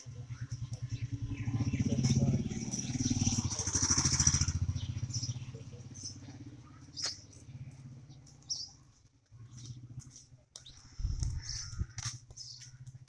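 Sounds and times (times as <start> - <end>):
vehicle engine: 0.0 - 13.0
high bird chirps: 0.3 - 8.9.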